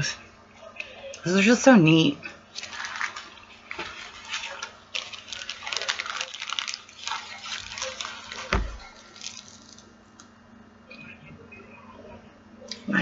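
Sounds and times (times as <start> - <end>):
plastic packets crinkling: 2.5 - 10.3.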